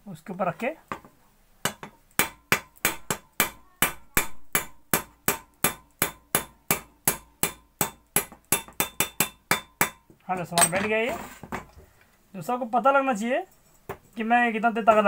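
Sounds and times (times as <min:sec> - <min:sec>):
hammer tapping on metal: 0:00.9 - 0:10.7.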